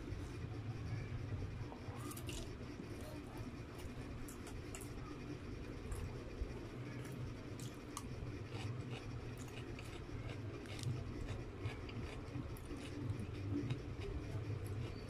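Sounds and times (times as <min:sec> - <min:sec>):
person chewing food: 0:07.0 - 0:15.0.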